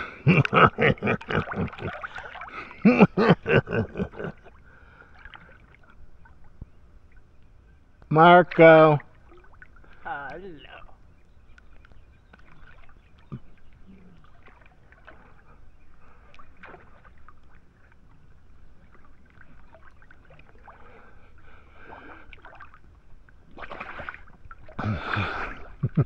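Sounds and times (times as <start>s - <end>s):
water splash: 0.0s - 3.3s, 8.5s - 10.4s, 16.3s - 17.7s, 21.8s - 22.8s, 23.4s - 26.0s
water dripping: 0.0s - 15.3s
pool water lapping: 0.0s - 26.0s.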